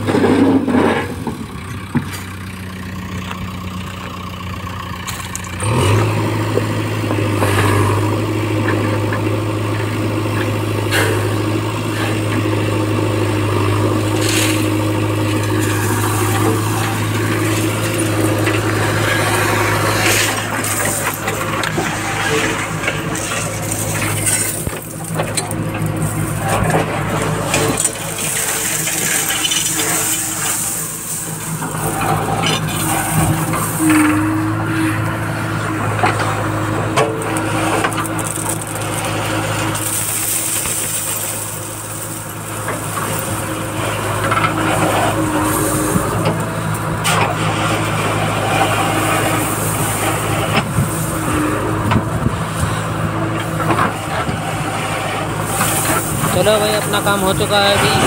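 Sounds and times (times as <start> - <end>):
diesel engine revving under load: 0.0 - 58.0
crushed stone clattering: 13.7 - 34.3, 37.3 - 52.8.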